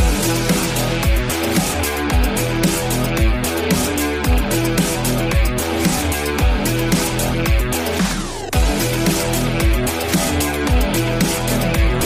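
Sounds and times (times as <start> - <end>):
music with steady beat: 0.0 - 12.0
deep bass hits dropping in pitch: 11.7 - 12.0.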